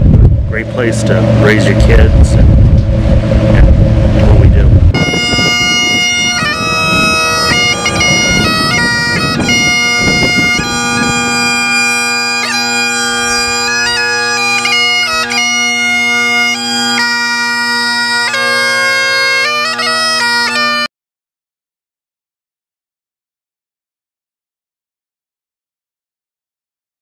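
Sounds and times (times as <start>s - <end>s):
noisy low rumble: 0.0s - 19.6s
bagpipes playing: 4.2s - 20.9s.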